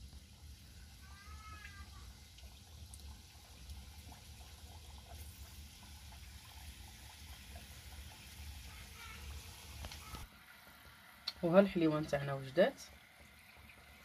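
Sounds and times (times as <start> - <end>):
pastries frying in oil: 0.0 - 14.0
small crackles: 9.8 - 10.3.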